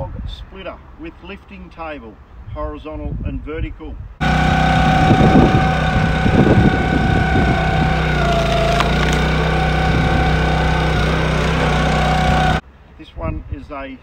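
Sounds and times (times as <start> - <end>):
petrol engine hydraulic pump whine: 4.2 - 12.6
log cracking as it splits: 8.2 - 9.6.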